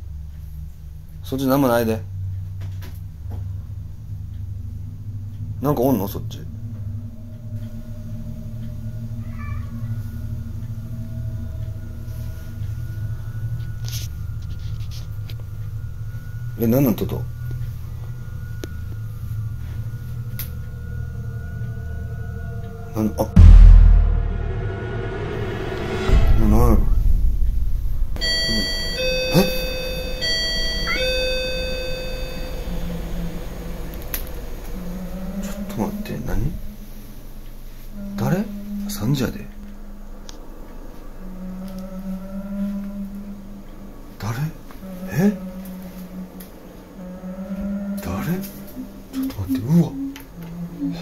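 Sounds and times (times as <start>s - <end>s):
steady low hum: 0.0s - 51.0s
cat meowing: 9.2s - 10.0s
intercom doorbell chiming: 28.2s - 32.8s.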